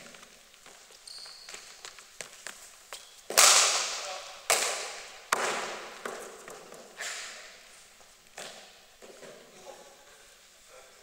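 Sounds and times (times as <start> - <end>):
cricket bat striking ball: 3.3 - 6.3.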